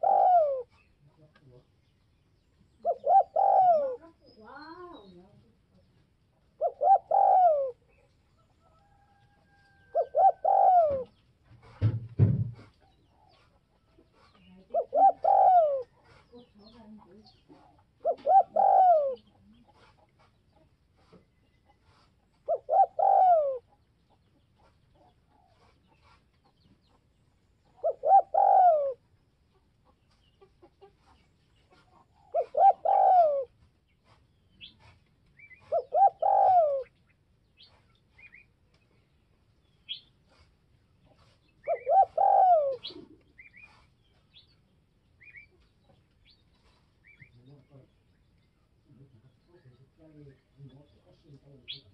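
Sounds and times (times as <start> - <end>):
dove cooing: 0.0 - 1.0, 2.8 - 5.0, 6.4 - 8.1, 9.8 - 11.2, 14.2 - 16.6, 17.4 - 19.9, 22.3 - 23.8, 27.7 - 29.1, 31.7 - 33.6, 34.6 - 37.0, 41.2 - 43.9.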